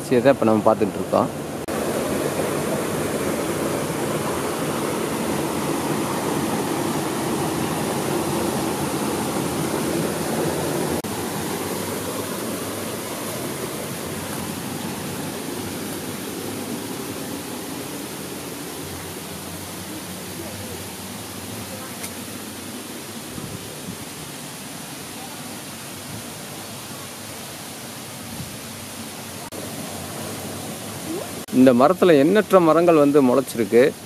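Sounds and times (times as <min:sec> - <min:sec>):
steady rushing noise: 0:00.1 - 0:24.5.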